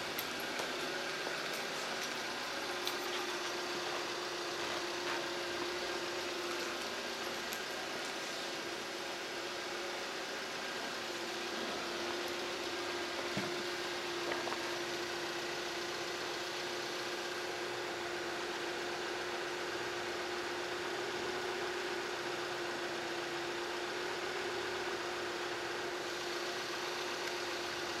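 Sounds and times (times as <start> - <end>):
constant mid-pitched tone: 0.0 - 18.1
steady mechanical hum: 0.0 - 28.0.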